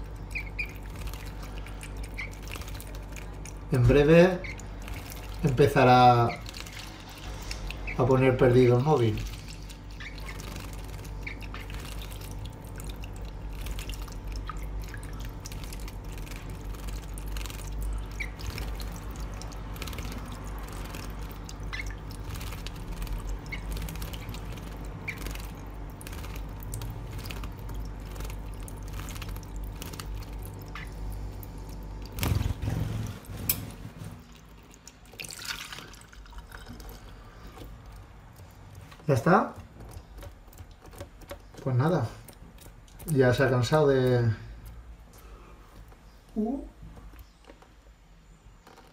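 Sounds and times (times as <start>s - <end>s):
bird wings splashing in water: 0.3s - 3.8s, 4.4s - 37.1s.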